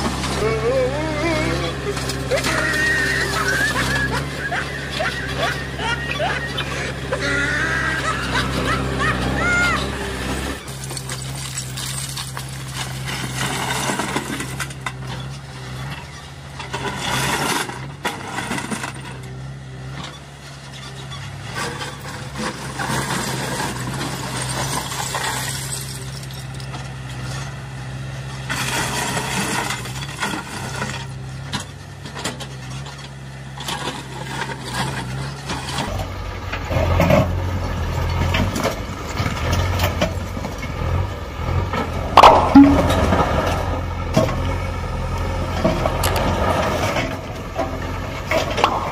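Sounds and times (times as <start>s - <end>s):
diesel engine running: 0.0s - 48.9s
broken stone clattering: 10.7s - 15.0s, 22.8s - 26.7s, 42.2s - 43.6s.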